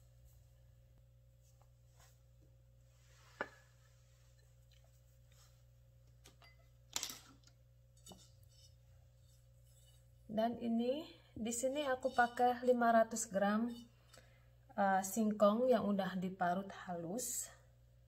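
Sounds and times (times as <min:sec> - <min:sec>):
faint steady hum: 0:00.0 - 0:18.0
kitchenware clicks and knocks: 0:06.3 - 0:07.5.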